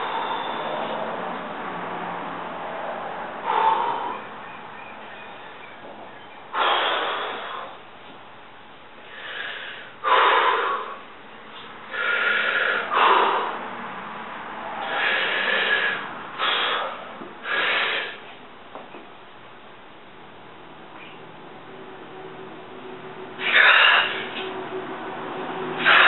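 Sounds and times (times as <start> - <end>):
man breathing forcefully: 0.0 - 1.3, 3.3 - 4.4, 6.5 - 7.9, 9.0 - 13.8, 14.7 - 18.3, 23.4 - 24.5, 25.8 - 26.0.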